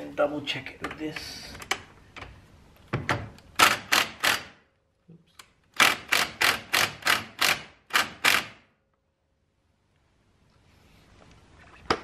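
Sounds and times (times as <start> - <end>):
impact wrench bursts: 3.6 - 4.6, 5.7 - 8.7.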